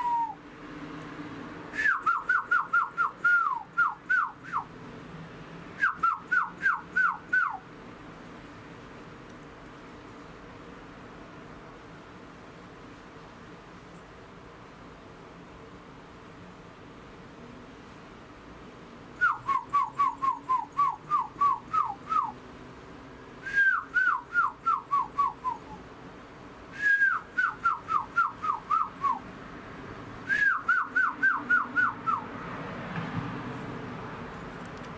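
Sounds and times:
bird whistling descending notes: 0.0 - 0.4, 1.8 - 4.7, 5.8 - 7.6, 30.3 - 32.2.

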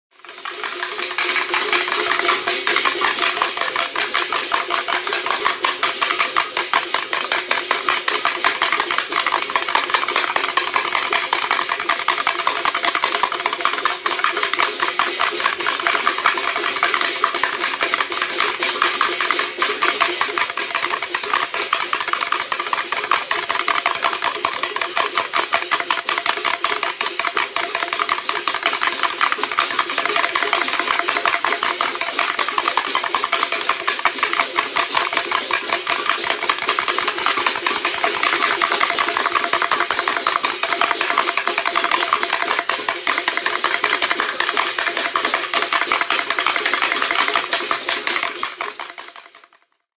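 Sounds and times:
rapid clattering: 17.0 - 47.8.

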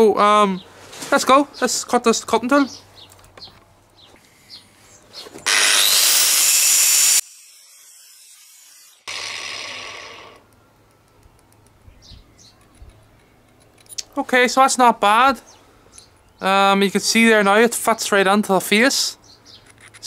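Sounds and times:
angle grinder grinding steel: 5.4 - 10.4.

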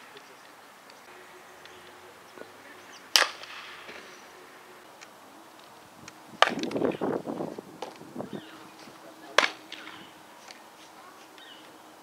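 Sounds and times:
bat hitting softball: 3.1 - 4.3, 6.4 - 7.0, 9.4 - 10.0.

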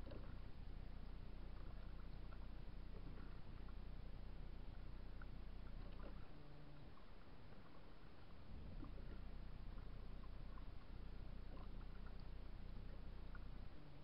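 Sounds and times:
low steady rumble: 0.0 - 14.0
water lapping against hull: 0.0 - 14.0.

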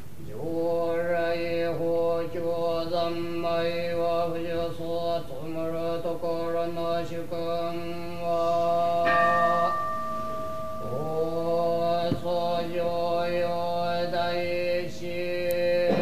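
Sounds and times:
monks chanting in unison: 0.3 - 9.8, 10.8 - 16.0
bell ringing: 9.0 - 11.4.

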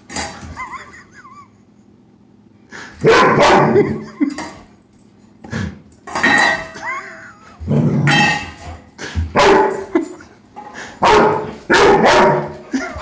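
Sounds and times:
dog barking sharply: 3.0 - 3.7, 11.0 - 12.5.

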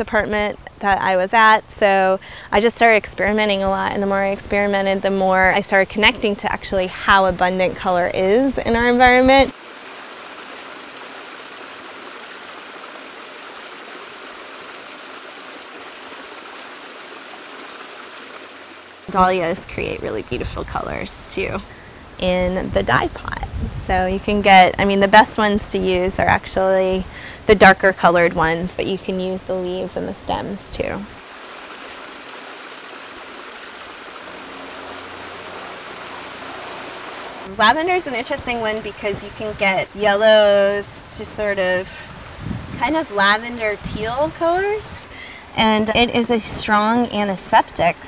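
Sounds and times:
steady rushing noise: 31.1 - 39.6.

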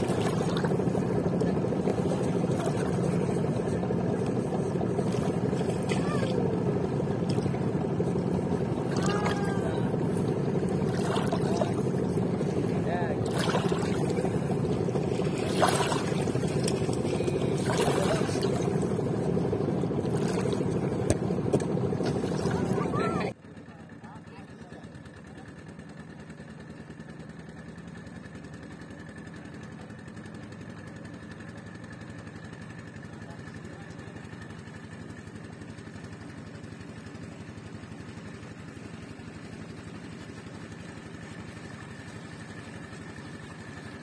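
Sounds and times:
water splashing against hull: 0.0 - 23.3
motorboat engine running: 0.0 - 44.0.

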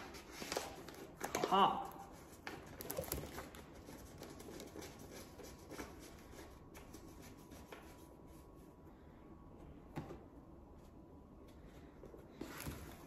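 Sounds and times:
paper rustling and rubbing: 0.0 - 8.7.

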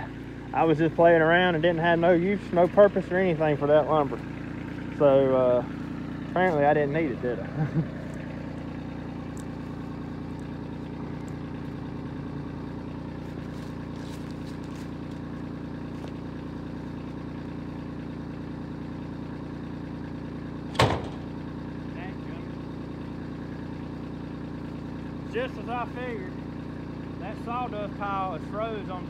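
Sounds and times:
diesel engine idling: 0.0 - 29.0.

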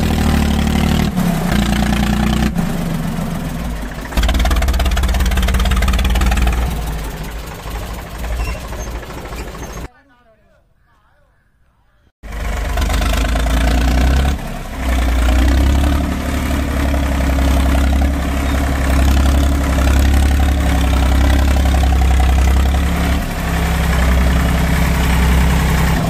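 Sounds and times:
tractor diesel engine running: 0.0 - 9.9, 12.2 - 26.0.

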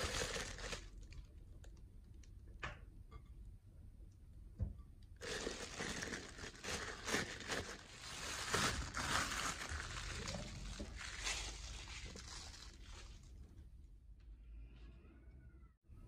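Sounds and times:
plastic piping bag crinkling: 0.0 - 1.3, 5.2 - 13.5.

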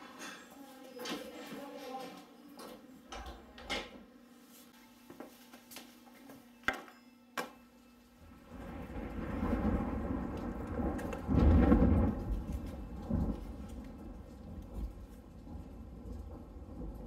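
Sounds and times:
low rumble: 8.2 - 17.0
rain hissing: 8.2 - 17.0.

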